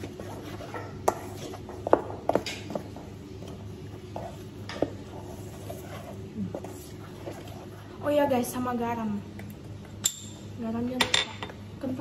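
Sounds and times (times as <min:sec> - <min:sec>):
spoon stirring flour in bowl: 0:00.0 - 0:08.4.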